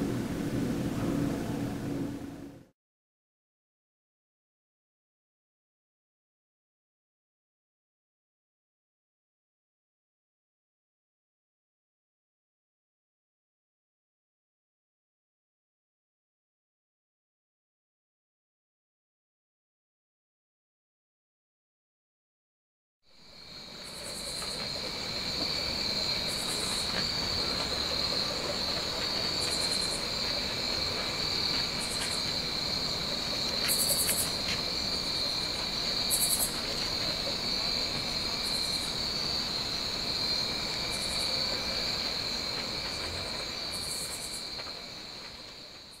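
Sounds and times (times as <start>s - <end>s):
crickets trilling: 23.1s - 46.0s
insects pulsing: 23.2s - 46.0s.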